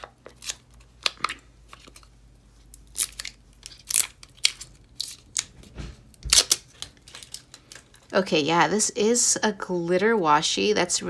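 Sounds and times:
tape wrapping crinkling and tearing: 0:00.0 - 0:08.2.

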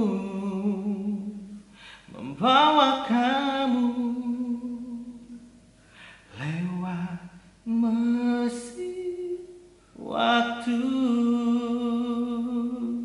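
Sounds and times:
men singing unaccompanied: 0:10.0 - 0:13.0.

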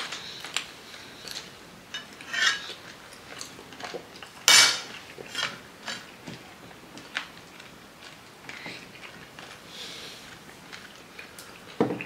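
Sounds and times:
forks clinking on plates: 0:02.0 - 0:02.8.

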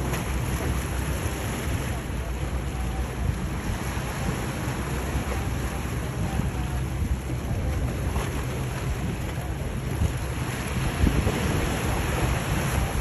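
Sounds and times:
motorboat rumbling: 0:00.0 - 0:13.0
water rushing from wake: 0:00.0 - 0:13.0
wind buffeting microphone: 0:00.0 - 0:13.0.

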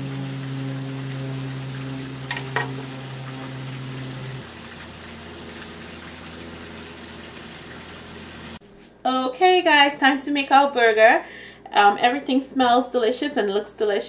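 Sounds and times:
burger patties sizzling on grill: 0:00.0 - 0:08.6
low hum: 0:00.0 - 0:08.6.

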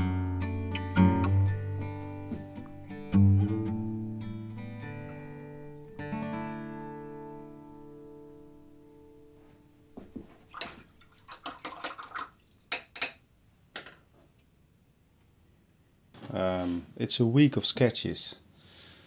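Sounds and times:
acoustic guitar chord ringing: 0:00.0 - 0:10.0.

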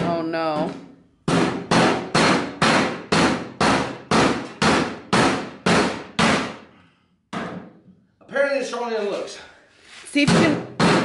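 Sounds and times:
hammer striking chisel on metal: 0:00.0 - 0:06.6.

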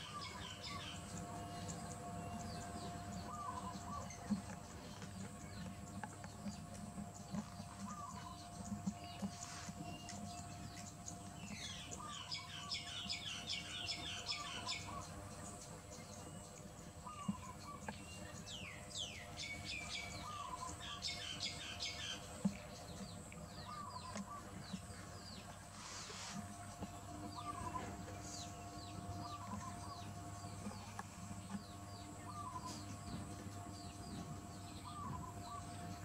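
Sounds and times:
lower bird call: 0:00.0 - 0:04.5, 0:07.8 - 0:08.4, 0:25.7 - 0:33.0, 0:34.1 - 0:36.0
small birds twittering: 0:00.0 - 0:36.0.

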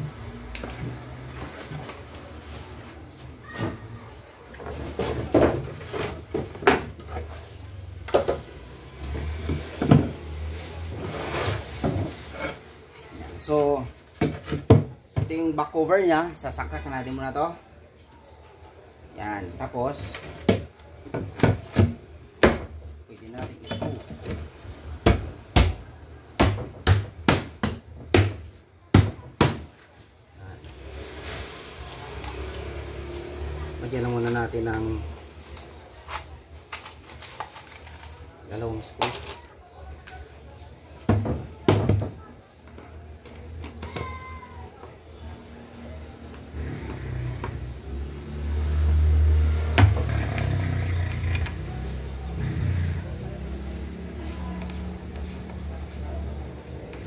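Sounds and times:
wooden panels knocking and scraping: 0:04.6 - 0:07.4, 0:11.0 - 0:12.6, 0:14.1 - 0:15.4, 0:20.1 - 0:25.3, 0:41.0 - 0:42.2, 0:49.6 - 0:50.5.

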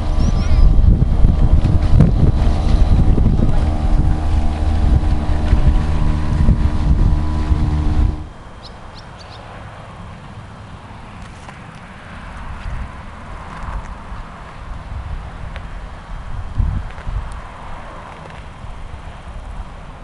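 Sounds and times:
outboard motor running: 0:00.0 - 0:08.4
wind buffeting microphone: 0:00.0 - 0:08.5, 0:12.4 - 0:20.0.

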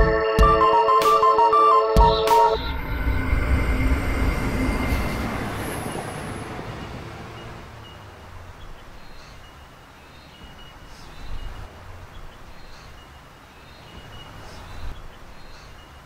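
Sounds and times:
electric train rumbling past: 0:02.4 - 0:09.2.

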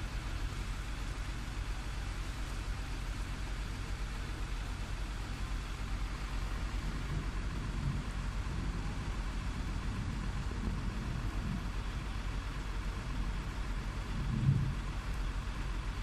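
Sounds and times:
heavy rain pouring: 0:00.3 - 0:16.0
low rumble: 0:05.9 - 0:16.0.

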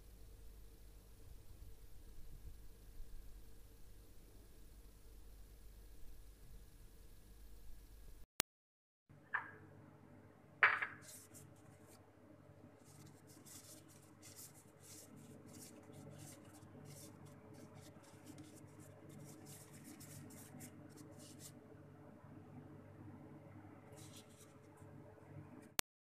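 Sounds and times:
plastic gloves crinkling: 0:12.8 - 0:21.5.

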